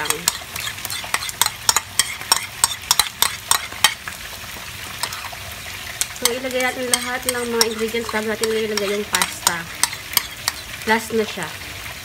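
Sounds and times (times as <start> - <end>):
metal spoon scraping glass bowl: 0.0 - 4.0, 5.0 - 5.4, 6.0 - 10.8
pan sizzling: 0.0 - 12.0.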